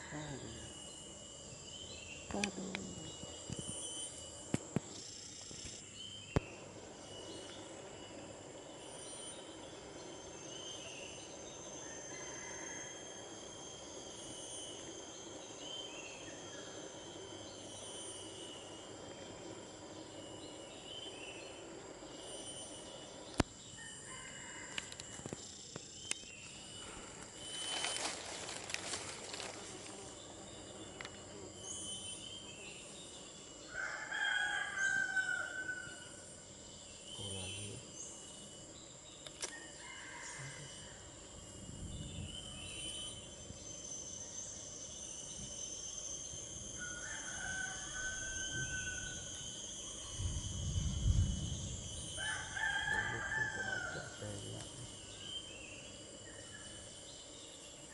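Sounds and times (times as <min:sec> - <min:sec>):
high-pitched insect drone: 0:00.0 - 0:57.9
lower insect tone: 0:00.0 - 0:57.9
crackling noise: 0:24.8 - 0:29.9
rooster crowing: 0:33.7 - 0:36.1, 0:39.7 - 0:41.0, 0:46.8 - 0:49.4, 0:52.2 - 0:54.3
sharp click: 0:39.2 - 0:39.6.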